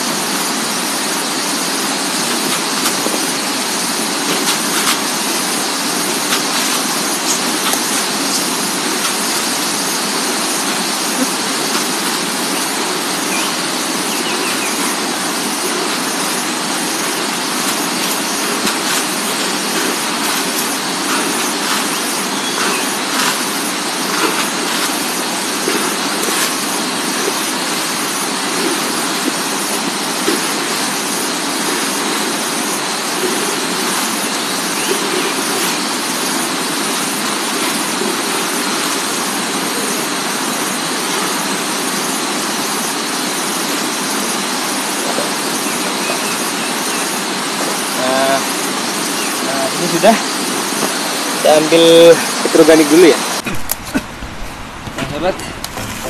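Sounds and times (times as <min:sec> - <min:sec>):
steady hiss: 0:00.0 - 0:56.0
fertilizer ticks and rustles: 0:14.0 - 0:42.0.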